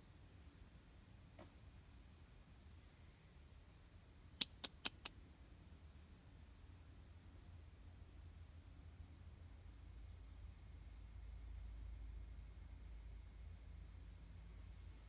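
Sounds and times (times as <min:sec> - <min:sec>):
quick sharp clicks: 0:04.4 - 0:05.2.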